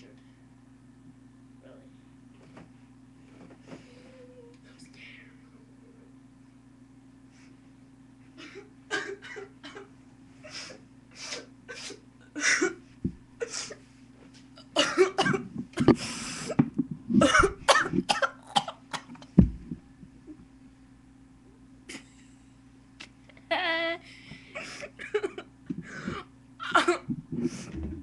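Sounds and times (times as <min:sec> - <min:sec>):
person coughing: 0:08.4 - 0:09.9, 0:10.6 - 0:12.8, 0:14.6 - 0:16.0, 0:17.2 - 0:19.2, 0:24.6 - 0:28.0
sharp thump: 0:19.4 - 0:19.8.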